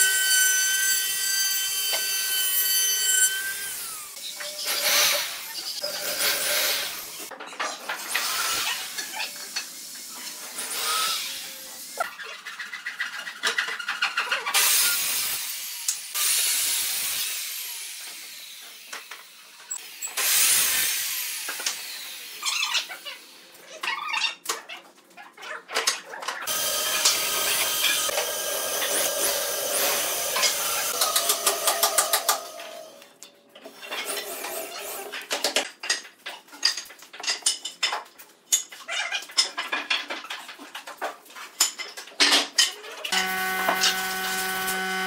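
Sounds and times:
electric drill running: 26.5 - 33.0, 43.1 - 45.0.

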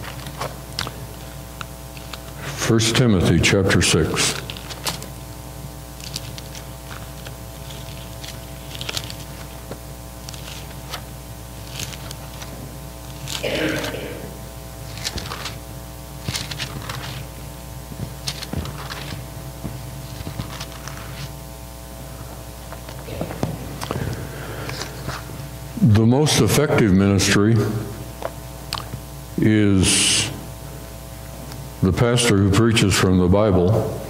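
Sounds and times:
paper pages rustling: 0.0 - 1.3, 3.8 - 5.2, 5.8 - 13.9, 14.8 - 21.4, 22.2 - 25.4
electrical hum: 0.0 - 34.0.

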